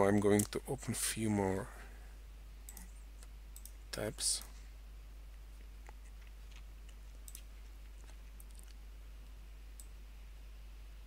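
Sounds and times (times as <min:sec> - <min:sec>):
steady low hum: 0:00.0 - 0:11.0
computer mouse clicks: 0:02.7 - 0:03.8, 0:09.8 - 0:10.0.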